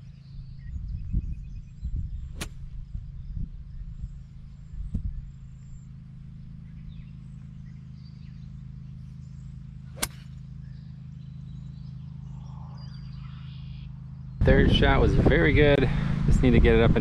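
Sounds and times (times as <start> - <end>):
steady low rumble: 0.0 - 17.0
golf club striking ball: 2.3 - 2.9, 9.2 - 10.9.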